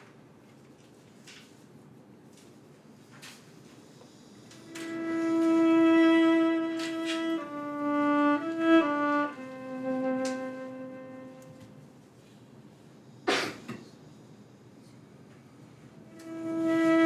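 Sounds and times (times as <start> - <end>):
solo violin played with bow: 4.6 - 11.8, 16.1 - 17.0.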